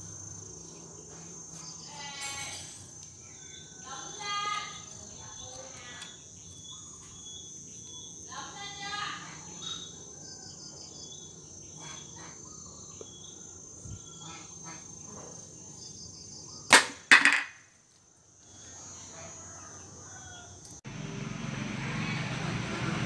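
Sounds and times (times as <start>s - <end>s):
can falling on tile floor: 16.7s - 17.6s
shot striking a can: 16.7s - 17.6s.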